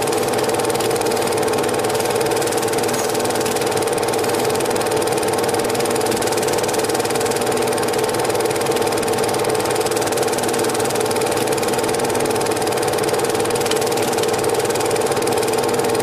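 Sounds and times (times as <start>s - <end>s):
film transport clatter: 0.0s - 7.1s, 9.5s - 14.8s
film projector whirring: 0.0s - 16.0s.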